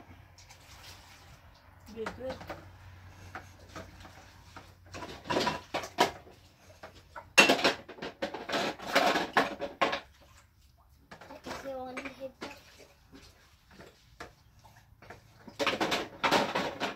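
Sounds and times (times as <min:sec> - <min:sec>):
pots and dishes knocking: 0:04.9 - 0:06.2, 0:06.8 - 0:10.1, 0:15.0 - 0:16.9.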